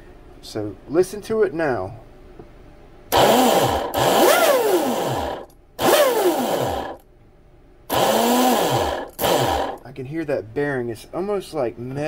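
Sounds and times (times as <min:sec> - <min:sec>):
electric motor revving: 0:03.1 - 0:07.0, 0:07.9 - 0:09.8
grinding bearing: 0:03.2 - 0:07.0, 0:07.9 - 0:09.9.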